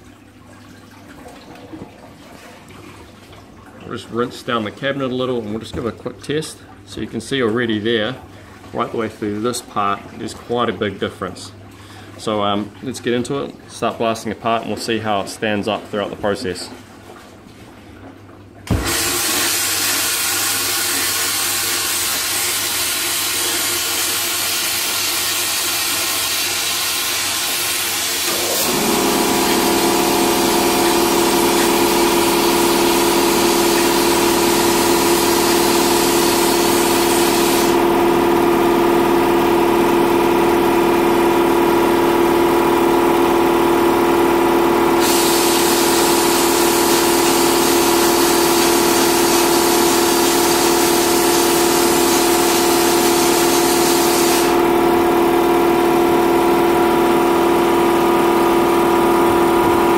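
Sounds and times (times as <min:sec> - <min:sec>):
motor humming: 0:28.2 - 0:59.9
loud steady blasting hiss: 0:34.7 - 0:37.8, 0:45.0 - 0:54.6.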